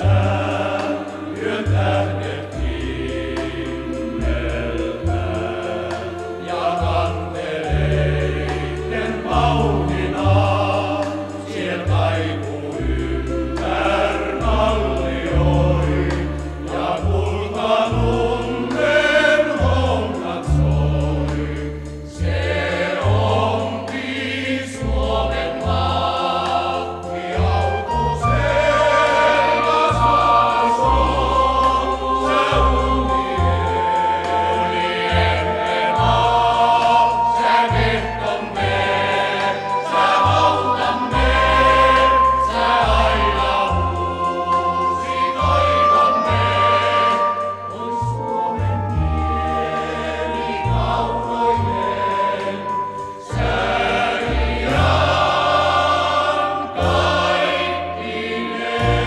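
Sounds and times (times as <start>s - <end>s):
group singing in chorus: 0.0s - 59.0s.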